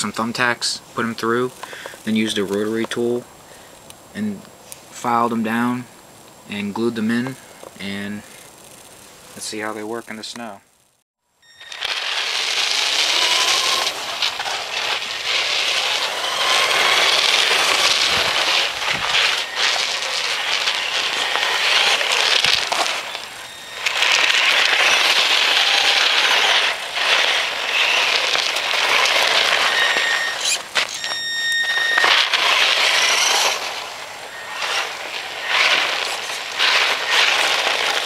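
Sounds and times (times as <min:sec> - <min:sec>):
rc truck tyres crunching snow: 0:00.0 - 0:03.2, 0:04.1 - 0:11.0, 0:11.6 - 0:38.0
electric motor whine: 0:11.4 - 0:38.0.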